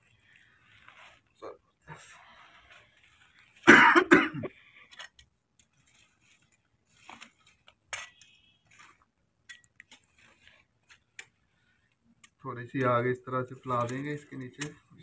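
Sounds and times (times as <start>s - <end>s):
person coughing: 3.7s - 4.5s.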